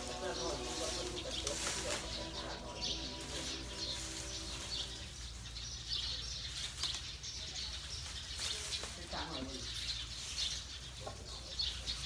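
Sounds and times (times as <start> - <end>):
elephant humming call: 0.0 - 5.2
small birds chirping: 0.0 - 12.0.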